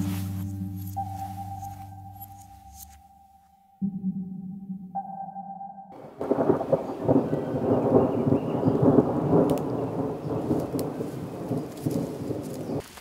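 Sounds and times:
held electronic tone: 0.0s - 6.2s
loud rumbling crackling noise: 6.0s - 12.8s.

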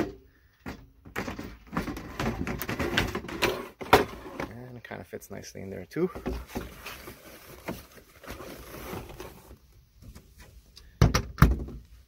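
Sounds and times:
rustling: 6.1s - 10.8s.

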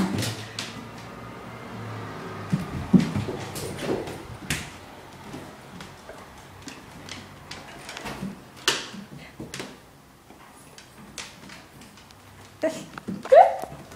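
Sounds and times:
dog claws tapping on wood floor: 2.5s - 13.9s.

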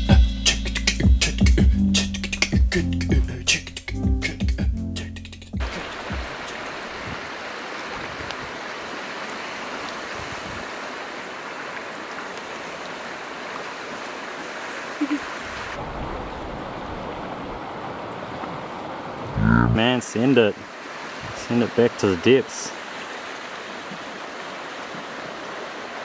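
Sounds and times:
stream water rushing: 5.6s - 26.0s.

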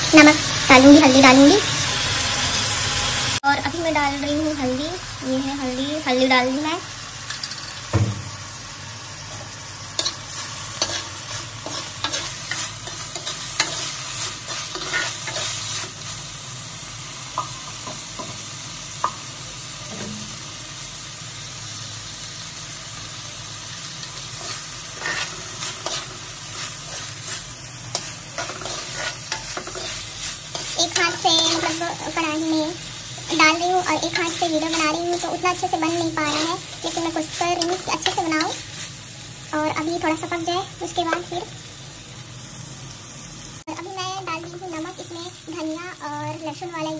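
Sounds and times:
vegetables sizzling in oil: 0.0s - 46.9s
single knock: 7.9s - 8.3s.

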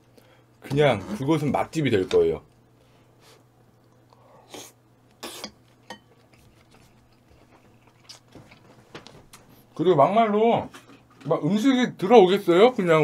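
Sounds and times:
low steady hum: 0.0s - 13.0s
spoon clinking against bowl: 5.9s - 6.1s.

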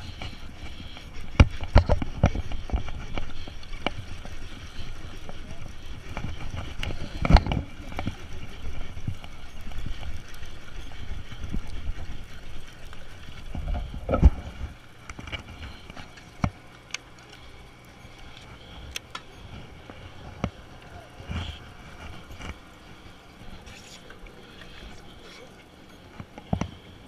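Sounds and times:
boat rumbling: 0.0s - 27.0s
water noise: 0.0s - 27.0s.

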